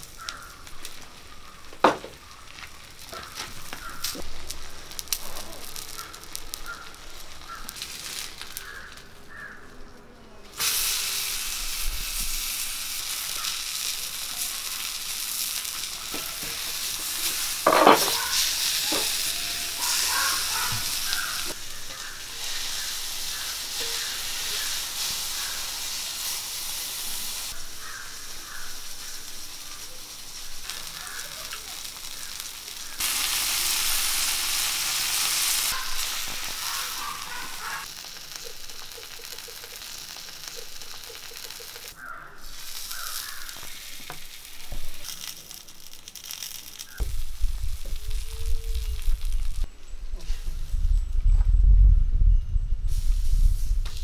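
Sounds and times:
fish sizzling on a hot griddle: 0.0 - 9.6, 10.5 - 50.7.

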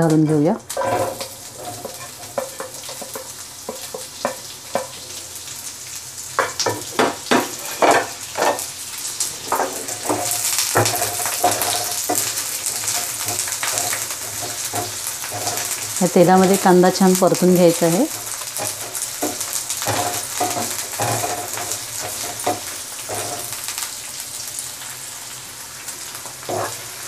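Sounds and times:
onion sizzling in oil: 0.0 - 27.0
wooden spatula knocking pan: 0.8 - 5.0, 6.4 - 8.6, 9.5 - 16.6, 18.1 - 23.8.

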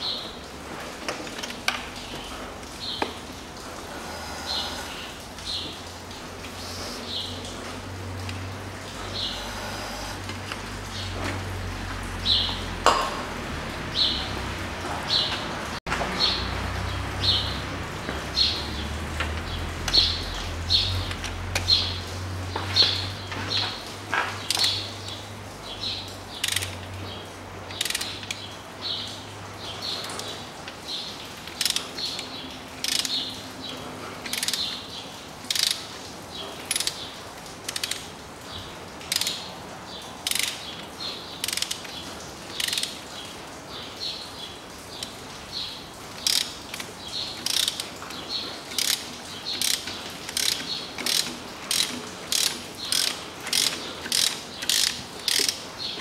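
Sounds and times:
ratchet wrench clicking: 26.4 - 26.8, 27.7 - 28.4, 31.5 - 31.9, 32.8 - 33.2, 34.3 - 34.6, 35.5 - 35.8, 36.7 - 37.0, 39.1 - 39.4, 40.2 - 40.6, 41.4 - 41.8, 42.6 - 42.9, 46.2 - 46.8, 47.4 - 47.8, 48.7 - 49.0, 49.6 - 55.6.

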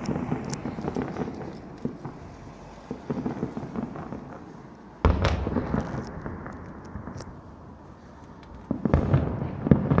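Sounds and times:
crackling firework bursts: 0.0 - 10.0
loud firework bang: 5.0 - 7.2, 8.7 - 10.0.

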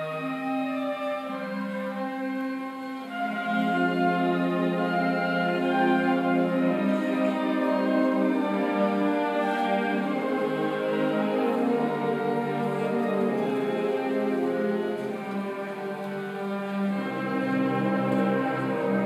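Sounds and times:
orchestra playing sustained notes: 0.0 - 19.0.

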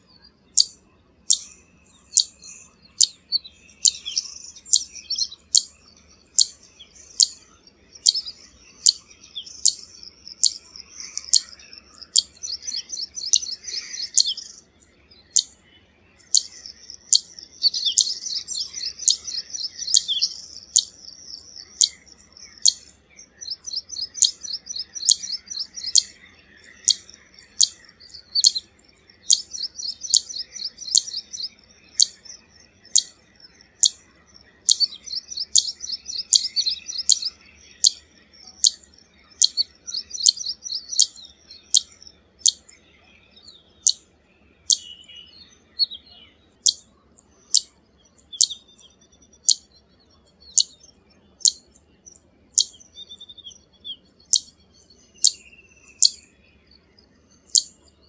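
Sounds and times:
bird calling high zit notes: 0.0 - 15.6, 16.2 - 44.0, 44.6 - 51.7
bird rapid chattering: 3.0 - 5.7, 8.0 - 14.6, 16.2 - 38.0, 38.6 - 42.7.

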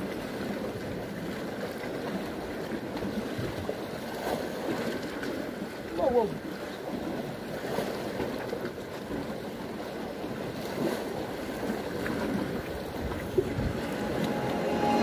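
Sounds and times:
sea surf: 10.4 - 15.0
wind buffeting microphone: 12.2 - 14.1.

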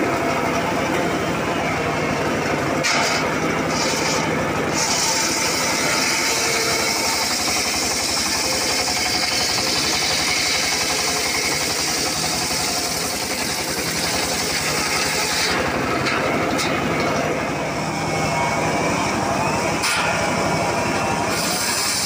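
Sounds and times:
sawbench engine running: 0.0 - 22.0
saw blade hissing through wood: 21.3 - 22.0.

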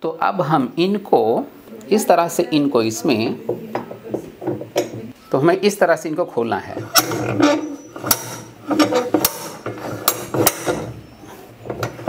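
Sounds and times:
hammer striking metal spanner: 6.9 - 10.9.

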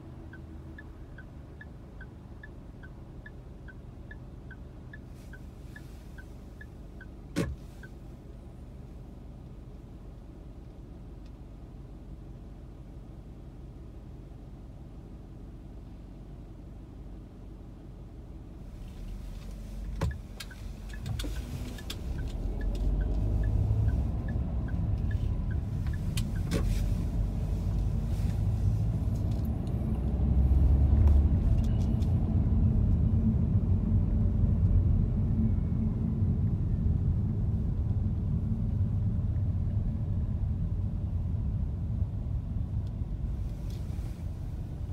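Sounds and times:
car engine and road noise: 0.0 - 44.9
light ticks: 0.3 - 7.2, 11.2 - 11.4, 18.9 - 26.7.

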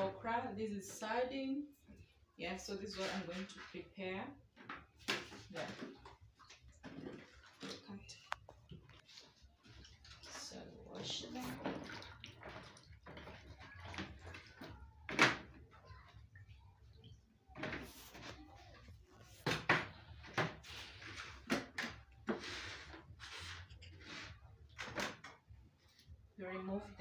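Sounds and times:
water splashing in basin: 5.0 - 17.2
plastic bowls knocking and clattering: 9.8 - 15.9.

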